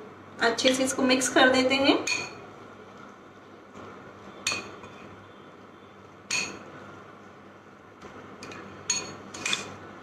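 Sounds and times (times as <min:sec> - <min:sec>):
spoon clinking against glass: 0:02.1 - 0:02.4, 0:04.5 - 0:04.9, 0:06.3 - 0:06.6, 0:08.4 - 0:09.7.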